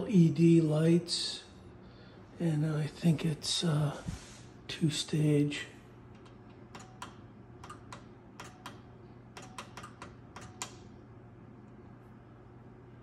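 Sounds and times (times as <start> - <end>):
push-button clicks: 6.2 - 10.9.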